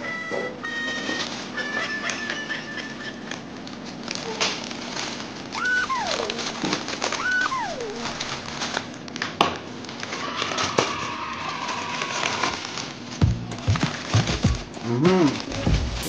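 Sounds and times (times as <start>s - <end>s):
plastic mailer crinkling: 3.4s - 10.2s
cat meowing: 5.6s - 8.4s.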